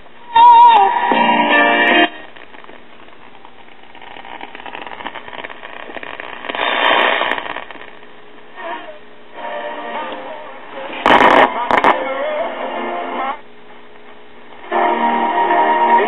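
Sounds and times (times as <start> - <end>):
radio static hiss and crackling: 0.0 - 16.0
radio station audio: 4.7 - 7.9, 8.5 - 13.3.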